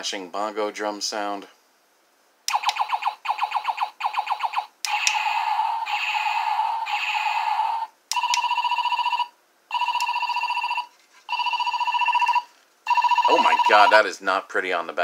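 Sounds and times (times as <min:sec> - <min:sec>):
phone-like ringing tone: 0:08.2 - 0:14.1
electronic warbling tone: 0:13.2 - 0:13.9.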